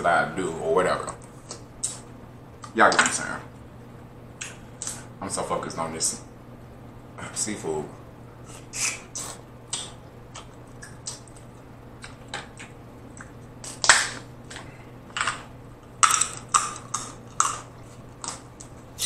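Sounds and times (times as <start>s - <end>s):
crab shell cracking: 12.0s - 18.7s.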